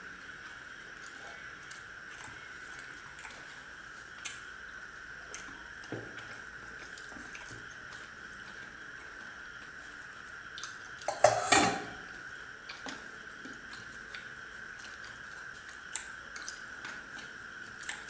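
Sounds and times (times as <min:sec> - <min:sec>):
faint high hum: 0:00.0 - 0:18.0
metal plates and bowls clattering: 0:11.1 - 0:11.9.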